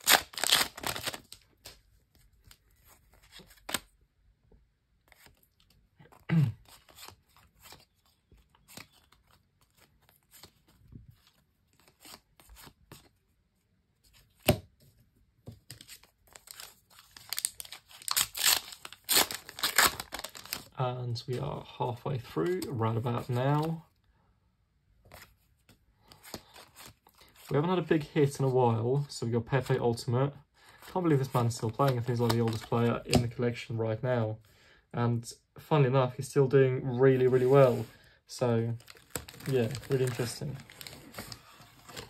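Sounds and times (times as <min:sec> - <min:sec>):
foil pack tearing and crinkling: 0:00.0 - 0:01.4, 0:16.3 - 0:20.7, 0:38.8 - 0:42.0
cards being handled: 0:00.0 - 0:04.0, 0:05.0 - 0:13.2, 0:25.0 - 0:27.5, 0:30.8 - 0:33.4, 0:38.8 - 0:42.0.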